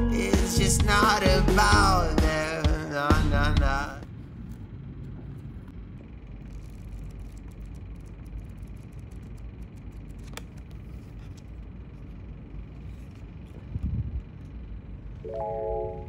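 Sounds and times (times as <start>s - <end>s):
low background rumble: 0.2s - 16.0s
book pages rustling: 6.3s - 13.7s
faint high whine: 11.0s - 16.0s.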